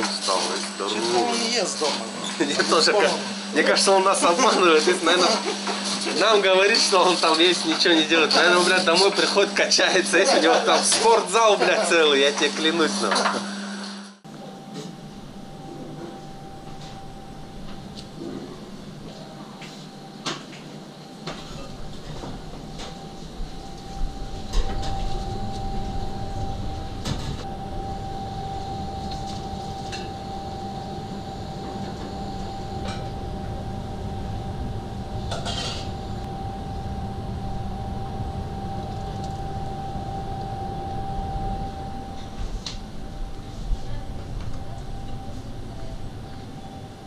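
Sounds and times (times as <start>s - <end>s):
thin steady whine: 0.0s - 47.0s
steady kitchen rumble: 14.3s - 47.0s.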